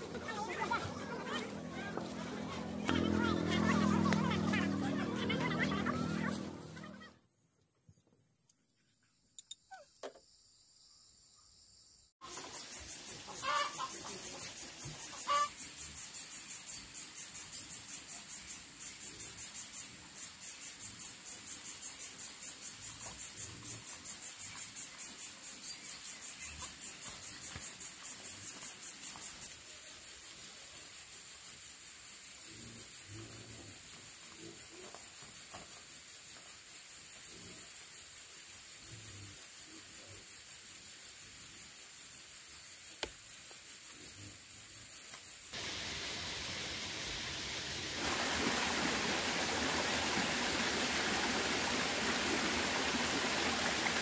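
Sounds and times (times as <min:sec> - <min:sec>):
high-pitched insect song pulsing: 0:05.2 - 0:47.9.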